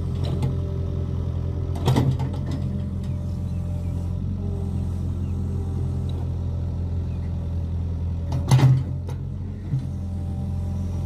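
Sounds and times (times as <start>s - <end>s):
excavator diesel engine running: 0.0s - 11.0s
excavator bucket clanking: 8.2s - 9.3s.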